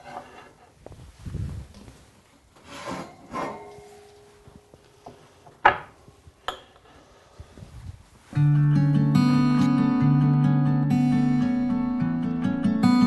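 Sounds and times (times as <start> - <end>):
acoustic guitar music: 8.3 - 13.0.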